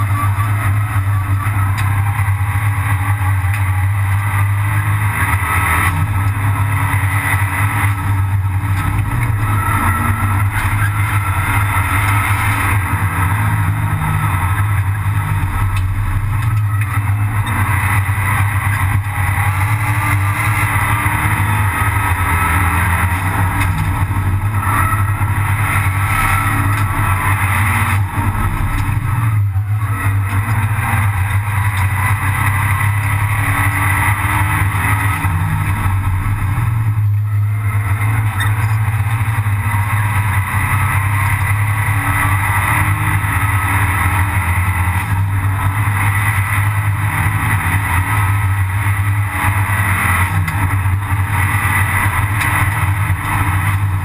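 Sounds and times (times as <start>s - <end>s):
race car engine running hard: 0.0s - 54.0s.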